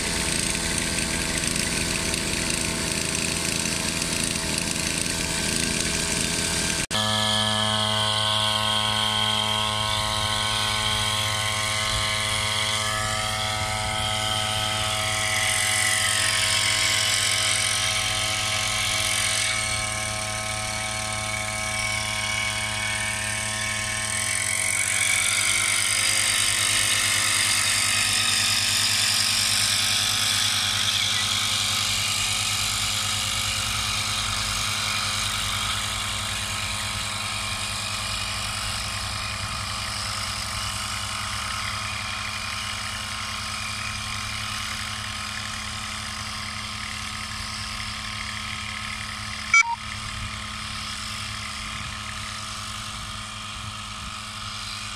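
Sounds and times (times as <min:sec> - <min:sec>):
power sprayer engine running: 0:00.0 - 0:54.9.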